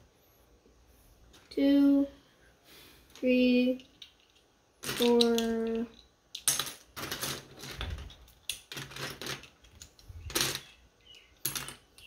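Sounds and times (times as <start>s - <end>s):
plastic bricks clattering: 3.8s - 12.0s.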